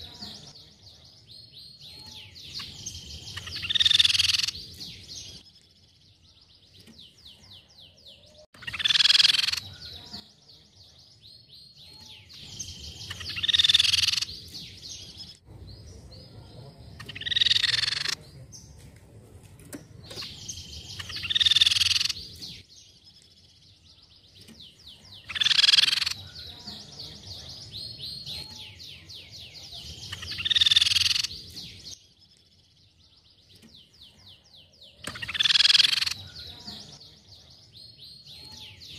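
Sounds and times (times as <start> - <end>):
bird high calls: 1.8 - 5.4, 7.3 - 10.2, 11.8 - 15.2, 17.0 - 18.4, 20.1 - 22.6, 24.7 - 31.9, 34.1 - 37.2.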